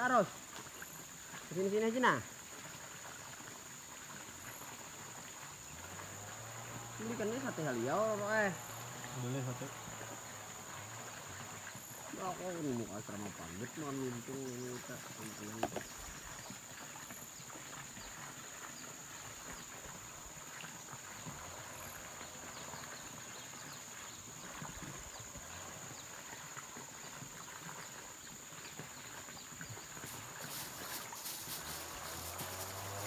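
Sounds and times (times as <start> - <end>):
low hiss: 29.6 - 33.0
faint clicks and rustles: 30.0 - 33.0.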